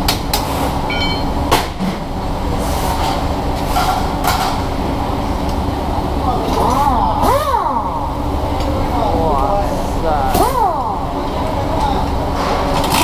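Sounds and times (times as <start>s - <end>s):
low workshop rumble: 0.0s - 13.0s
metallic ring: 0.9s - 1.3s.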